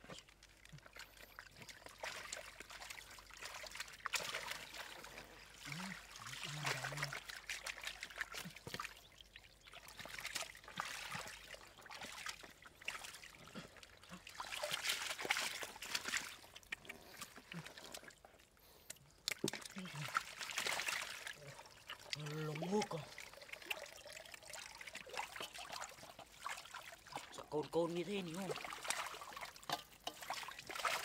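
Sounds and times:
water dripping: 0.0s - 31.0s
water trickling and splashing: 0.0s - 31.0s.

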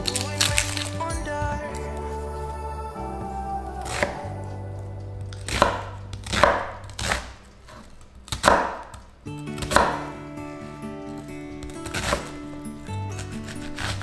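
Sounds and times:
knife slicing onion: 5.4s - 14.0s.

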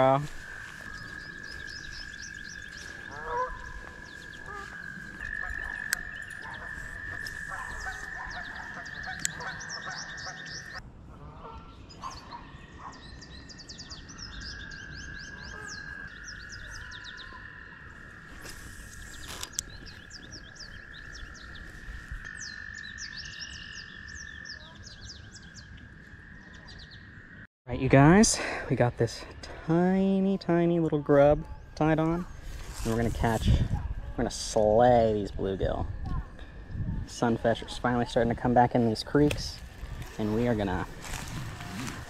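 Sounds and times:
steady high-pitched frog call: 0.0s - 10.8s, 12.6s - 27.5s
short quick frog calls: 0.3s - 10.8s.

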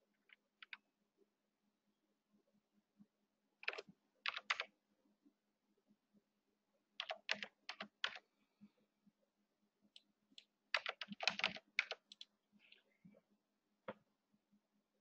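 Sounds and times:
keyboard typing: 3.6s - 4.7s, 7.0s - 8.2s, 10.0s - 12.8s.

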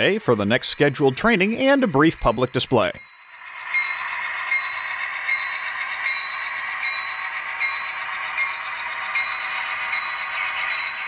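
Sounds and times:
model train mechanical hum: 0.0s - 11.0s
short ringing tone: 2.4s - 8.0s.

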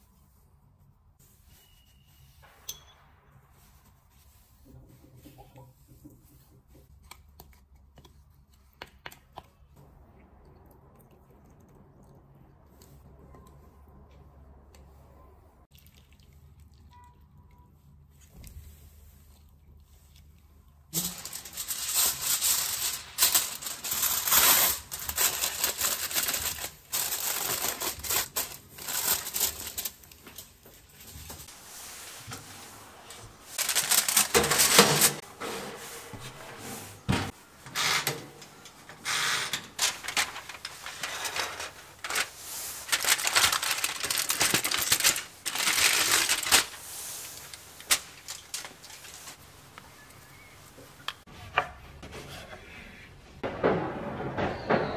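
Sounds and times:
aluminium foil crinkling: 20.9s - 31.5s, 33.4s - 35.2s, 39.0s - 49.7s.

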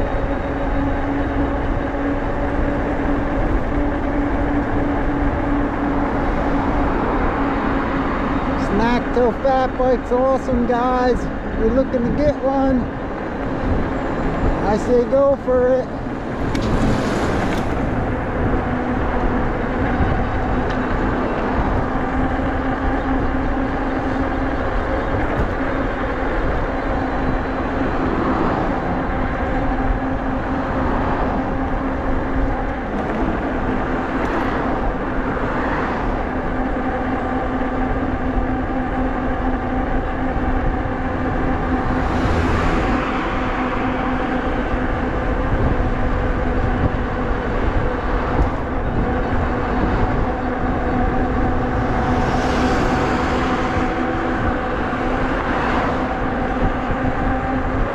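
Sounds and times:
electric bike hum: 0.0s - 57.9s
wind rumbling on microphone: 0.0s - 57.9s
cars swishing past: 15.9s - 18.6s, 32.8s - 36.2s, 41.1s - 44.0s, 51.5s - 56.3s.

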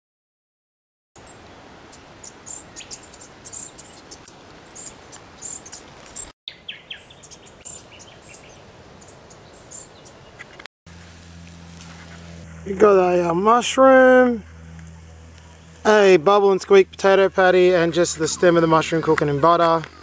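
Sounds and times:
bird chirps: 1.2s - 10.6s.

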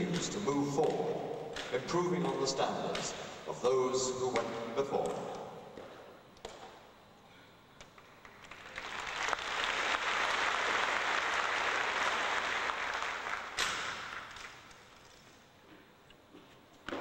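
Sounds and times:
audience applauding: 8.3s - 13.6s.

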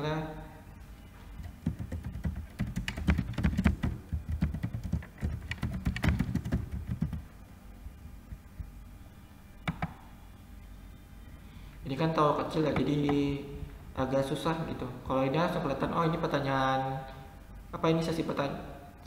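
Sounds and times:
typing on computer keyboard: 1.4s - 7.2s.

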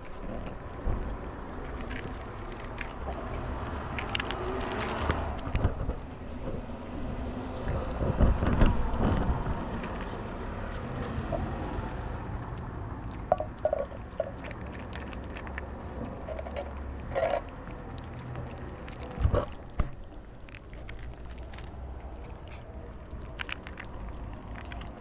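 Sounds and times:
kitten crunching cat food: 0.0s - 25.0s.

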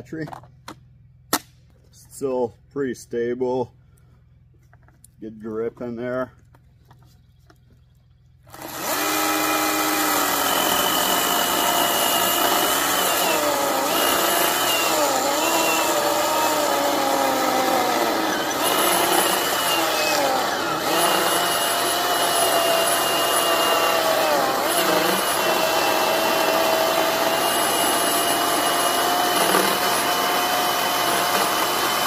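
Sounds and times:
chainsaw cutting through log: 8.5s - 32.0s.

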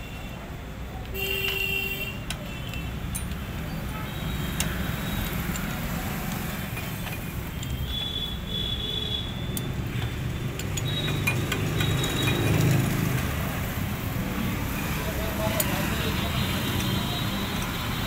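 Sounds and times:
socket wrench clinking: 2.7s - 8.0s, 9.6s - 12.9s.

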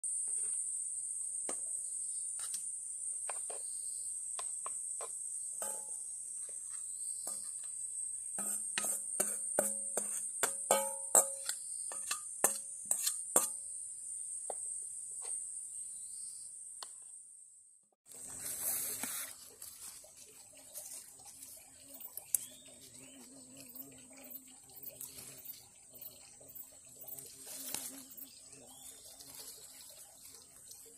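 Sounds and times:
outdoor background: 0.0s - 30.9s
metal bowl ringing: 5.6s - 6.1s, 10.5s - 12.6s.

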